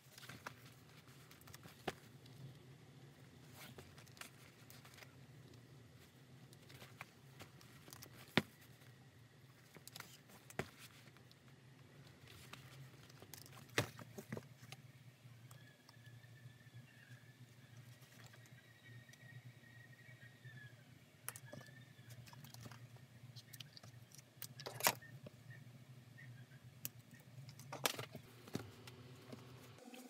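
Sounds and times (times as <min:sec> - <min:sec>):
low steady hum: 0:00.0 - 0:30.0
cloth rustling: 0:03.4 - 0:05.1.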